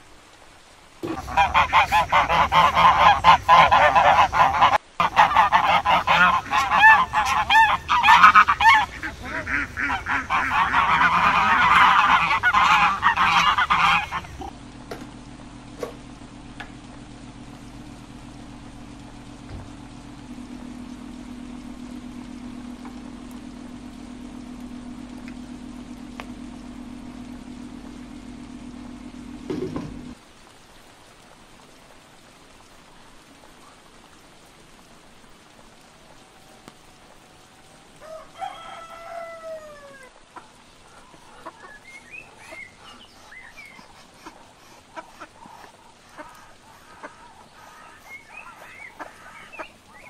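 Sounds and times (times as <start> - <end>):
chickens clucking: 1.0 - 17.4, 40.3 - 50.0
steady low hum: 1.0 - 30.2
rooster crowing: 37.9 - 40.2.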